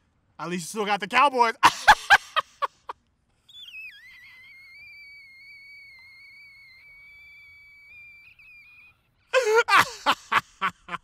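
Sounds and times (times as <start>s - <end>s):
man squealing: 3.5s - 10.4s.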